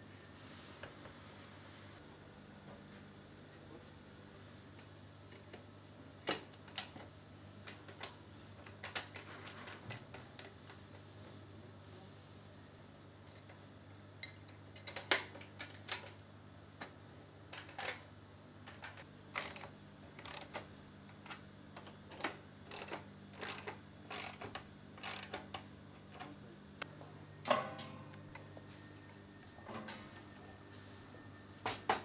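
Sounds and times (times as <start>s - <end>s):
steady low hum: 16.2s - 32.0s
ratchet wrench metal clicks: 19.4s - 20.5s, 22.2s - 24.4s, 25.0s - 25.4s
metal clunk: 27.4s - 28.2s.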